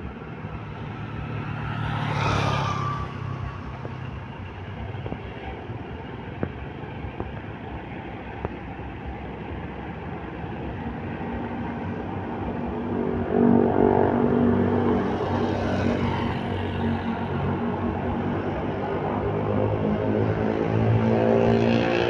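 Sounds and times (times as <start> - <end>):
bus engine running: 0.0 - 14.2
passing traffic: 0.0 - 22.0.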